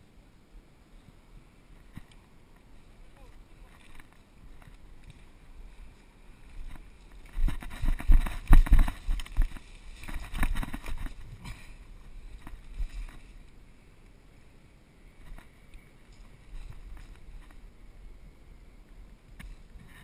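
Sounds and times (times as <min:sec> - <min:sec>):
footsteps through grass: 0:02.9 - 0:13.6.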